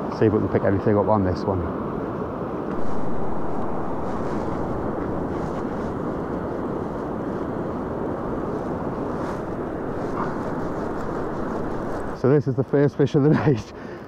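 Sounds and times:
wind: 0.0 - 14.0
surf rushing: 2.7 - 12.4.

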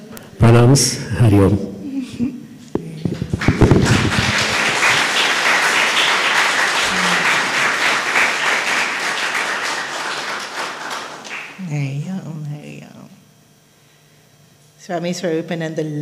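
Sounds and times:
audience applauding: 2.8 - 11.6.

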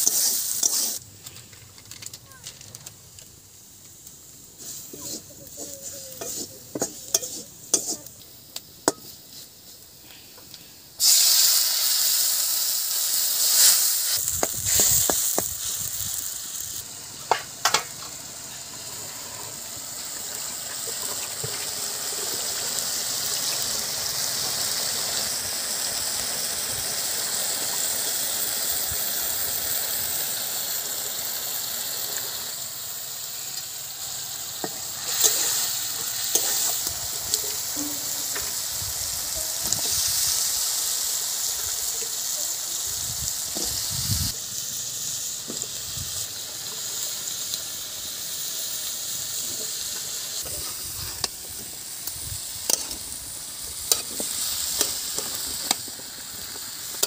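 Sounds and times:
food sizzling in a pan: 0.0 - 57.0
spatula scraping a metal pan: 4.6 - 8.1.

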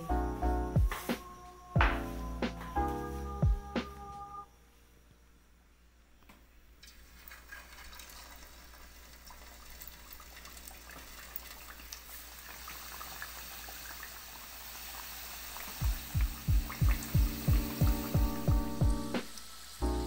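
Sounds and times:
oil sizzling and crackling: 6.8 - 20.0.

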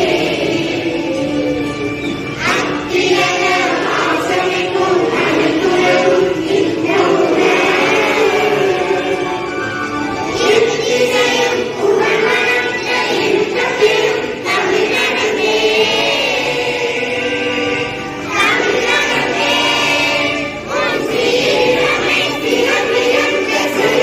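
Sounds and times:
children's choir singing: 0.0 - 24.0.

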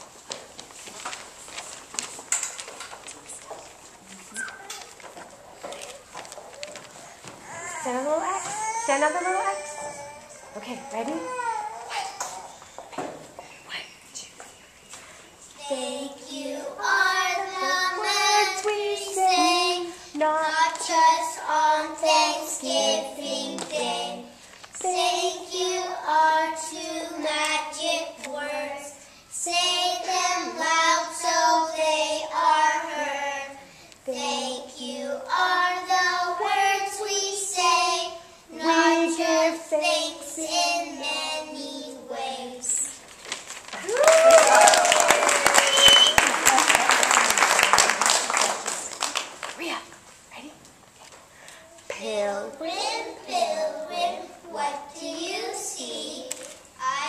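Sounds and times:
young children singing: 15.4 - 43.0, 52.2 - 57.0.

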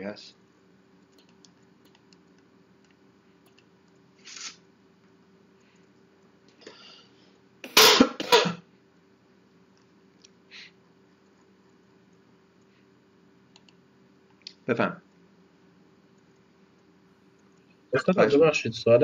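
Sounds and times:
person coughing: 7.7 - 8.7.

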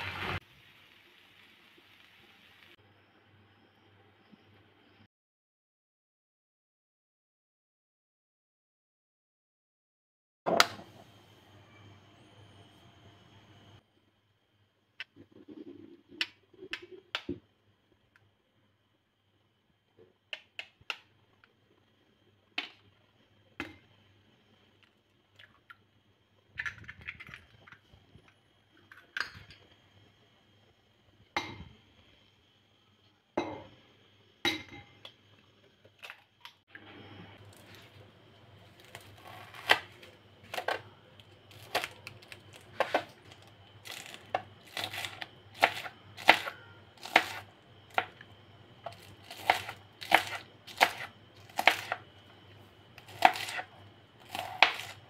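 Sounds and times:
knife chopping on cutting board: 49.3 - 52.0, 53.1 - 53.6.

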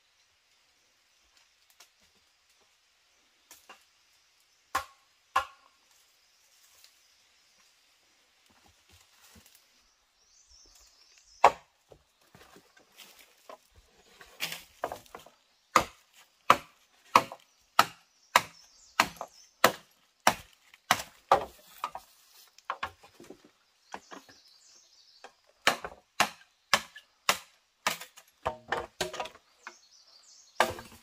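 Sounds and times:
wood chopping strokes: 4.7 - 5.7, 11.4 - 11.7, 12.3 - 24.4, 25.2 - 29.8, 30.6 - 31.0.

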